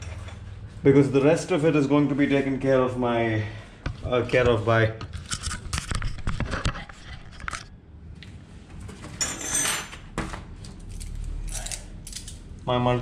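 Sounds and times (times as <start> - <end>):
metal tools clicking: 10.9 - 12.4.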